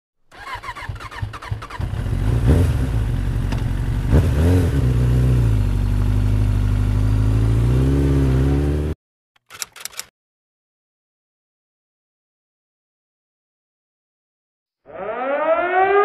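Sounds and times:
motorcycle engine revving: 0.3 - 9.0.

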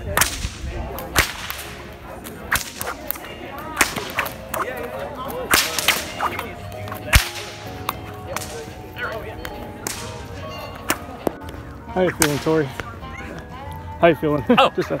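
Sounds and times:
bullwhips cracking: 0.2 - 8.6, 10.8 - 11.1.

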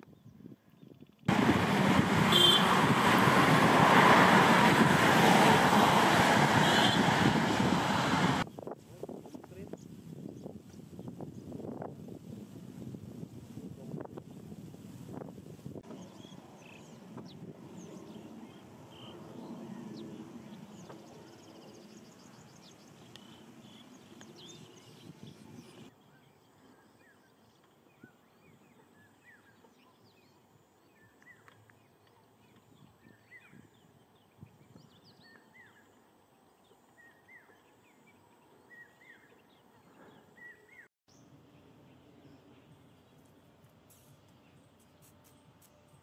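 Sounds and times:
wind rumbling on microphone: 0.0 - 25.9, 32.6 - 35.4
small birds chirping: 15.9 - 43.4.

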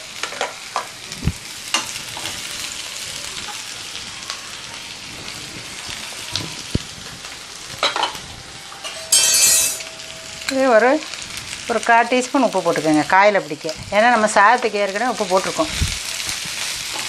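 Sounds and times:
vegetables sizzling in oil: 0.0 - 17.0.

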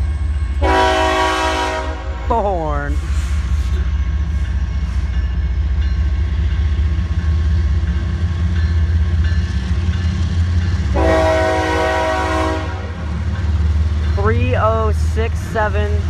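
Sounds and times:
diesel locomotive rumbling: 0.0 - 16.0
locomotive air horn blast: 0.6 - 2.2, 10.9 - 13.0.

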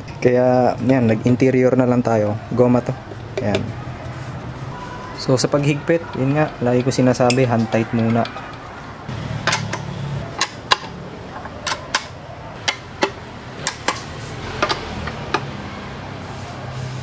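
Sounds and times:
socket wrench clicking: 9.4 - 15.5.

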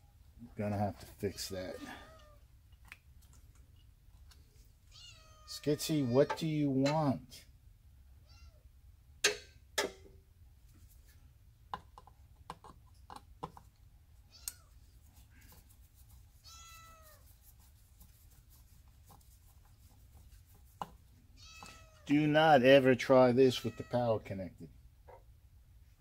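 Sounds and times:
cat meowing: 1.7 - 2.4, 4.9 - 6.4, 8.2 - 8.6, 16.4 - 17.2, 21.4 - 22.1.

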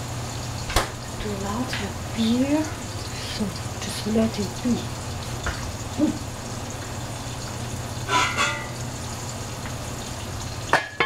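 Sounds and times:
metal pot lid clanking: 8.0 - 8.9, 10.7 - 11.0.

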